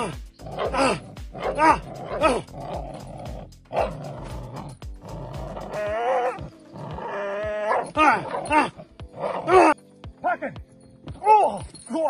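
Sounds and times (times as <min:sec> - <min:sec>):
young dog barking and growling: 0:00.0 - 0:09.8
dog wavering cry: 0:05.6 - 0:09.8.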